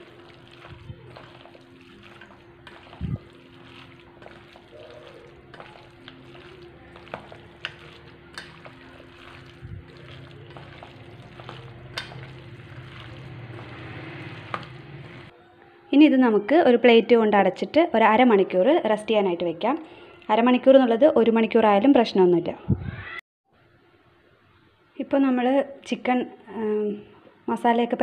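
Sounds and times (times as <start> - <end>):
hand squishing wet meat: 0.0 - 15.3.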